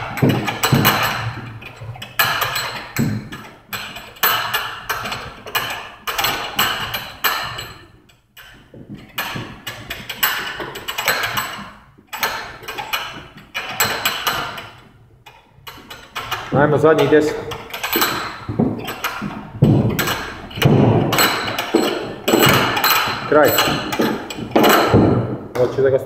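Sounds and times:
battle ropes slapping floor: 0.0 - 26.0.

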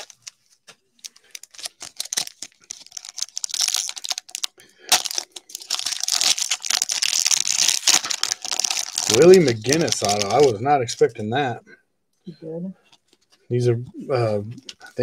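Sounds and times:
plastic crinkling and rustling: 0.0 - 10.6.

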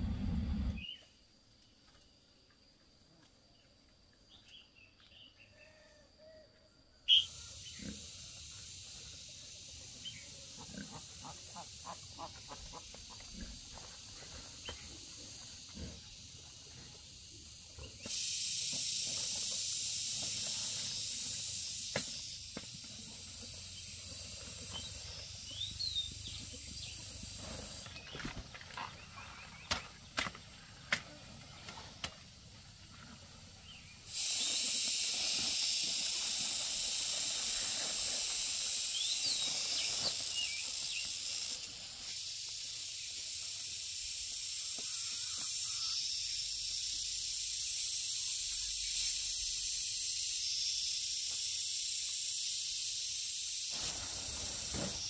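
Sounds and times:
insects droning: 0.0 - 55.0
bird chirps: 7.1 - 7.9.

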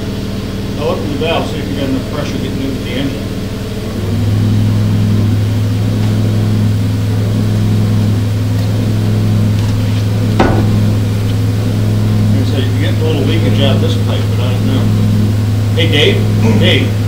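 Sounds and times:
steam engine humming: 0.0 - 17.0
sharp knock: 10.4 - 11.0.

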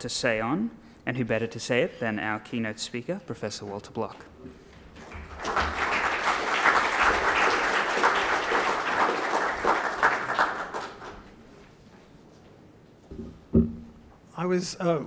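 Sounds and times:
audience applauding: 5.0 - 11.4.

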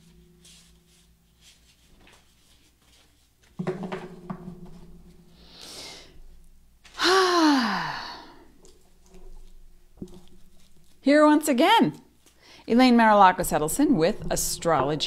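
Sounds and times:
soft knocks: 3.6 - 5.3
woman sighing: 6.9 - 8.5.

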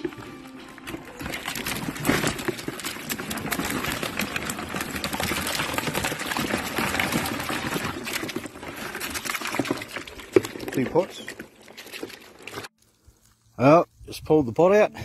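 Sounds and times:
water splashing: 0.0 - 12.9
crayfish shells clattering on plastic: 0.8 - 12.7.

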